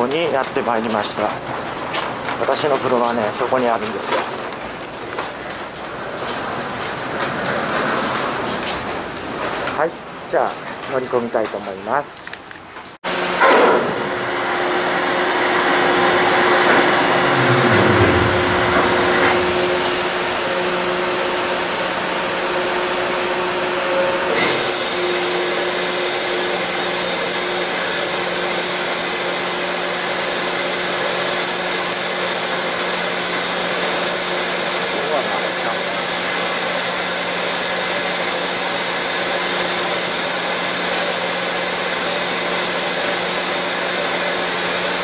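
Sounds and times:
hydraulic machinery drone: 13.3s - 23.2s.

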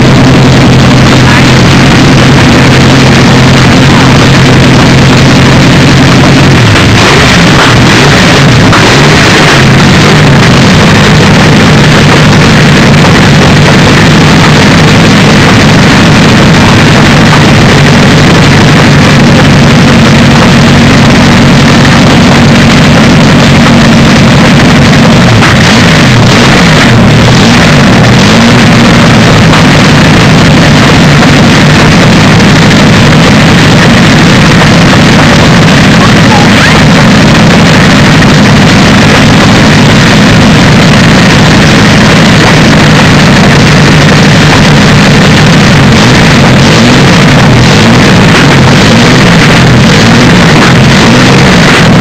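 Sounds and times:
aero engine running loudly: 0.0s - 52.0s.

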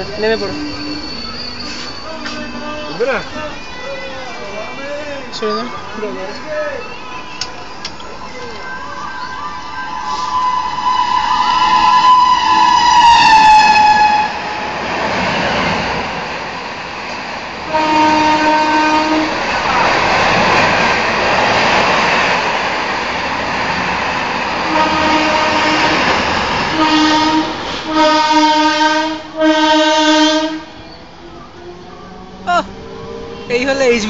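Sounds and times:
train coaches rushing past: 0.0s - 34.0s
lower train horn: 0.4s - 3.6s, 10.1s - 14.7s, 17.7s - 19.4s, 24.6s - 30.9s
train horn: 10.2s - 14.7s, 17.7s - 19.4s, 24.7s - 30.8s.

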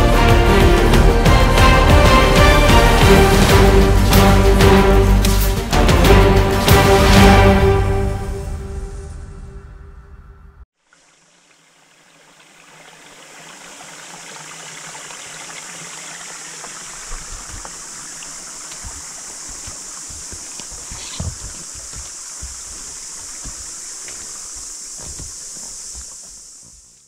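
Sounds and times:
forest stream rushing: 0.0s - 7.9s, 10.8s - 27.0s
horses moving through water: 11.8s - 27.0s
high hiss: 16.0s - 27.0s.

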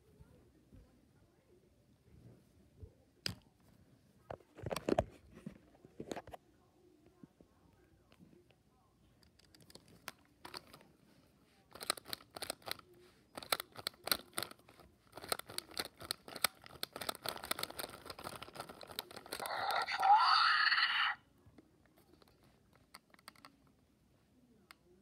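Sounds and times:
rustling and clicking of toy: 3.2s - 6.4s, 9.2s - 23.8s
loud raspy toy screech: 19.4s - 21.2s.

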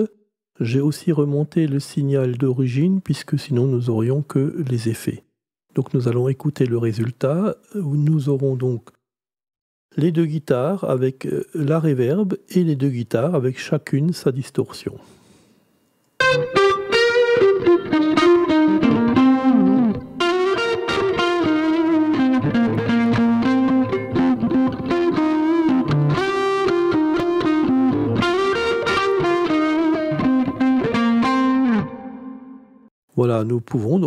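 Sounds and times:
distorted electric guitars: 16.2s - 32.4s.

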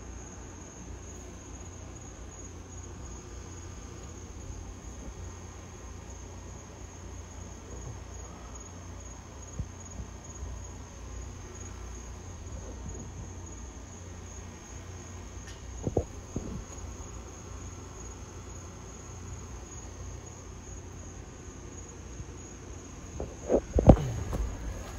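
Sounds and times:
crickets chirping: 0.0s - 24.9s
low rumble: 23.0s - 24.9s.

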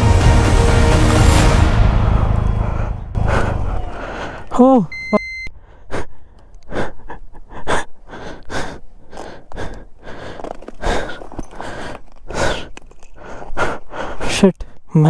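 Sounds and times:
man breathing hard: 1.9s - 4.6s, 5.5s - 14.9s.

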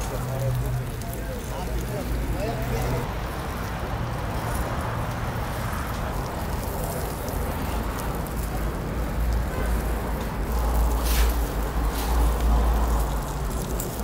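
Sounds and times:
rushing noise with deep rumble: 0.0s - 14.0s.

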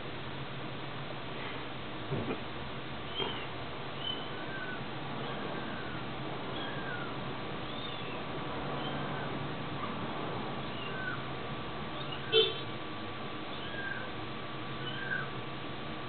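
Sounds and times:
kittens mewing: 3.1s - 8.2s, 10.6s - 11.3s, 13.5s - 14.2s.

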